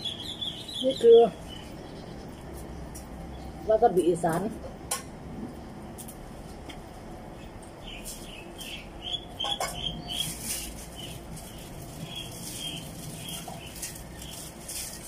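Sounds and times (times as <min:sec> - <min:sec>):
small birds chirping: 0:00.0 - 0:04.2, 0:07.3 - 0:15.0.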